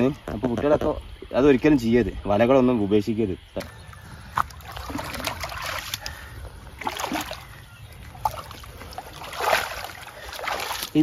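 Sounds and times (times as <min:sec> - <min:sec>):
muddy water sloshing and splashing: 0:03.6 - 0:11.0.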